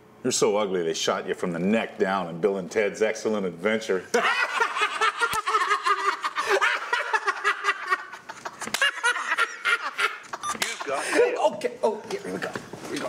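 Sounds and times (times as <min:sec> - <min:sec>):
men laughing: 0:04.1 - 0:11.4.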